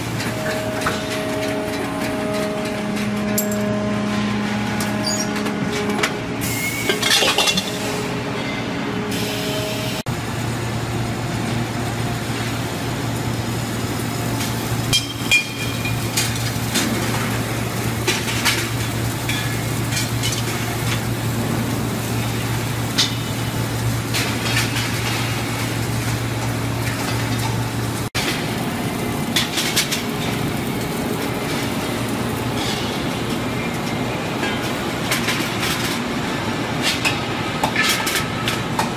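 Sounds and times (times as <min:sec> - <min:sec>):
steady machine hum: 0:00.0 - 0:38.9
metallic clinks and clanks: 0:00.2 - 0:03.7.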